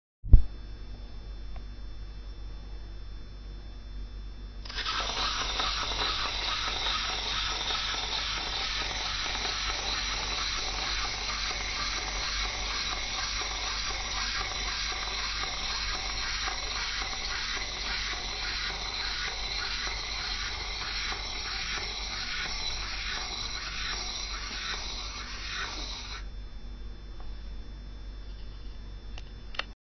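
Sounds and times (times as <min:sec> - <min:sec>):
toy monkey whirring: 0:04.7 - 0:26.2.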